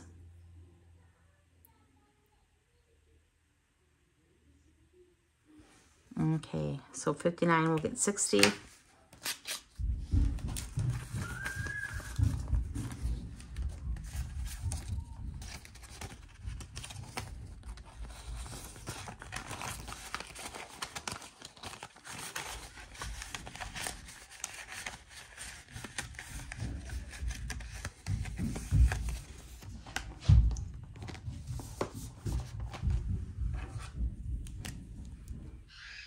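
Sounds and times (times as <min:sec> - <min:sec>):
paper rustling and crinkling: 0:08.4 - 0:34.8.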